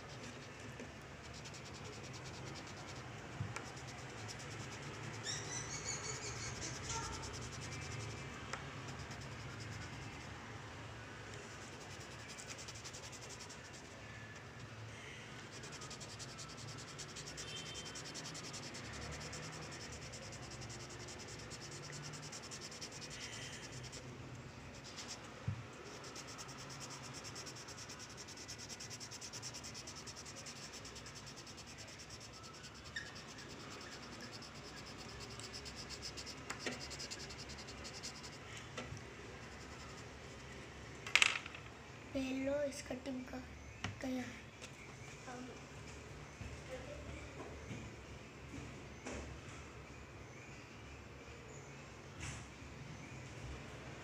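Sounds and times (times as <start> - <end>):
pencil scratching on paper: 0.0 - 10.3, 11.4 - 14.0, 15.4 - 24.1, 24.7 - 38.4, 39.4 - 40.4.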